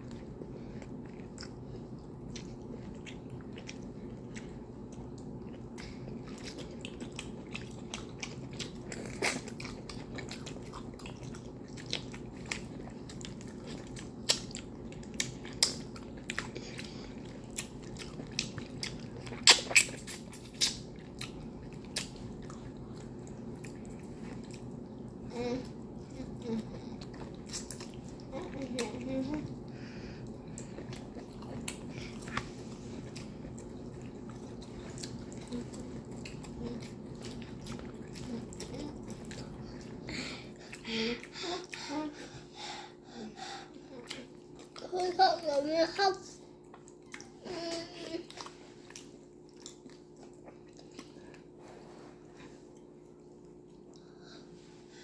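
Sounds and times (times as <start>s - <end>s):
wet chewing and mouth smacks: 0.0s - 25.2s, 27.0s - 29.0s, 29.6s - 40.0s, 46.6s - 47.4s, 48.2s - 51.6s.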